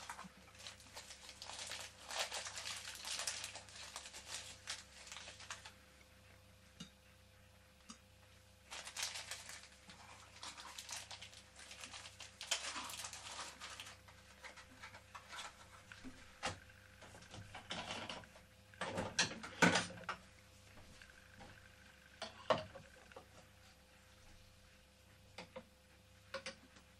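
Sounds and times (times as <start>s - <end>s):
plastic bag crinkling: 0.0s - 5.8s, 8.7s - 16.2s.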